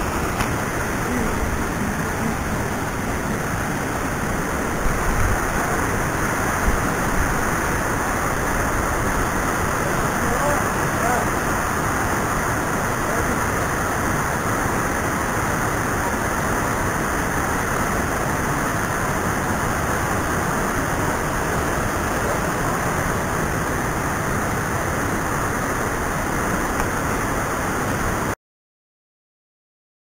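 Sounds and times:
waterfall rushing into pool: 0:00.0 - 0:28.4.

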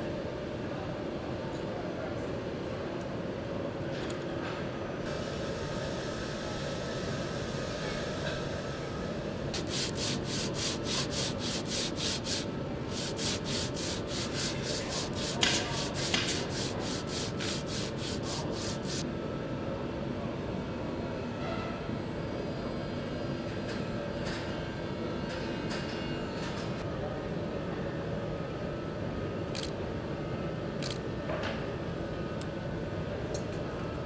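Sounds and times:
steady background hum: 0:00.0 - 0:34.0
hand sanding wood: 0:09.6 - 0:19.0.

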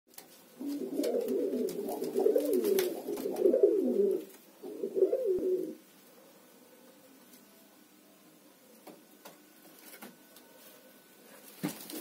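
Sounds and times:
pigeons cooing: 0:00.6 - 0:05.8.

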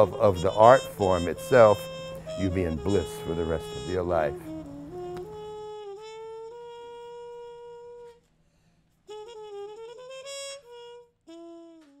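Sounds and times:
solo jazz horn: 0:00.0 - 0:12.0.

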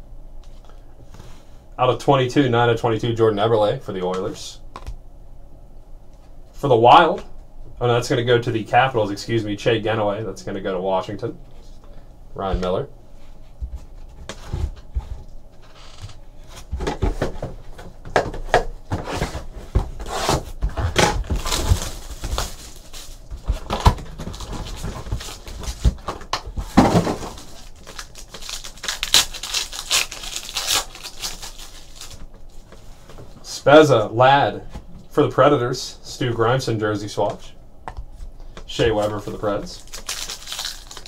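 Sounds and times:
foil wrappers crinkling and tearing: 0:21.0 - 0:32.3, 0:38.9 - 0:41.0.

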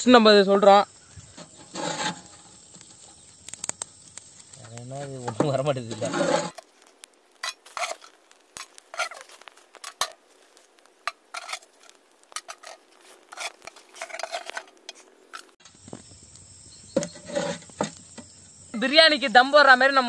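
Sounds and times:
embers clinking on metal plate: 0:01.2 - 0:10.2, 0:11.0 - 0:16.0.

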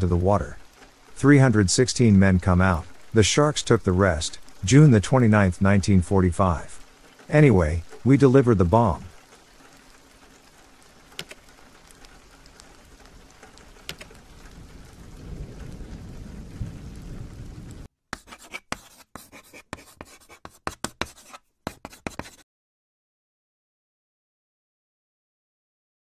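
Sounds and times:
rain hissing: 0:00.0 - 0:17.9
sharp ticks: 0:11.2 - 0:11.4, 0:13.6 - 0:14.2
scratchy pencil strokes: 0:18.1 - 0:22.4.

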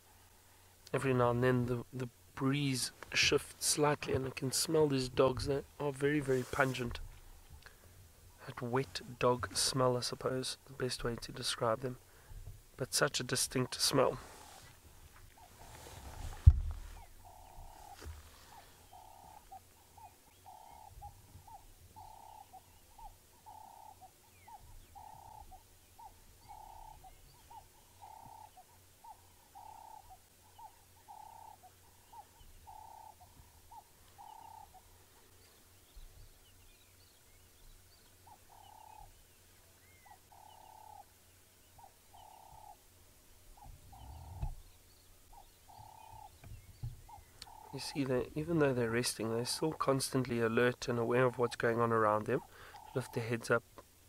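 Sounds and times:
bird hooting: 0:15.3 - 0:35.3, 0:38.1 - 0:39.2, 0:39.8 - 0:42.8, 0:43.5 - 0:48.0, 0:52.4 - 0:53.3.

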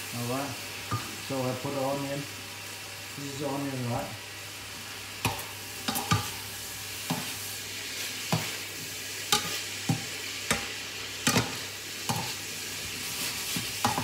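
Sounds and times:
food sizzling in a frying pan: 0:00.0 - 0:14.0
metal spoon scraping a pan: 0:05.2 - 0:06.4, 0:09.3 - 0:12.4, 0:13.0 - 0:14.0.

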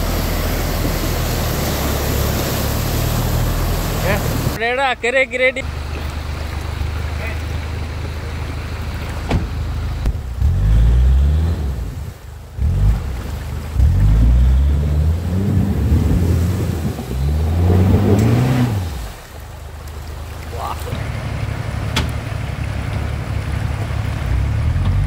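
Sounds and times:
engine revving hard: 0:10.4 - 0:12.0, 0:12.6 - 0:19.1.

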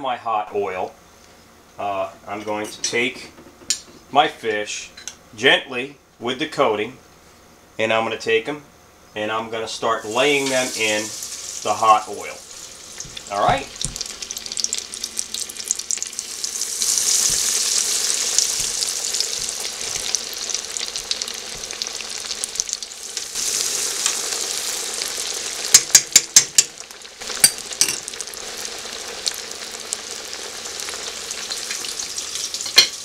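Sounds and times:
fish sizzling in hot oil: 0:10.0 - 0:33.0.

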